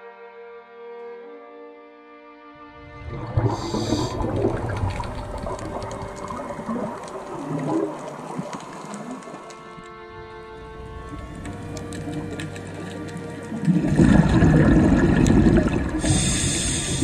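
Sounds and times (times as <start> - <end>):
underwater bubbles gurgling: 2.8 - 17.0
short hiss: 16.0 - 17.0.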